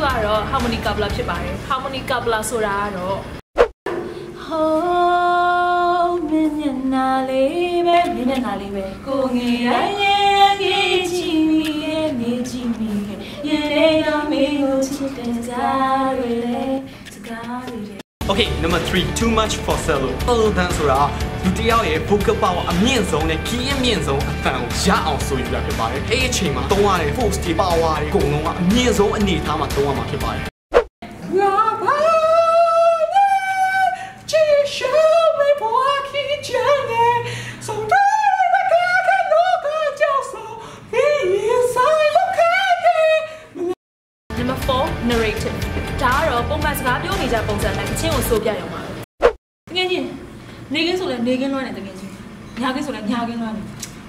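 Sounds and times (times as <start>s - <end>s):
woman singing with vibrato: 4.0s - 18.0s, 31.1s - 43.8s.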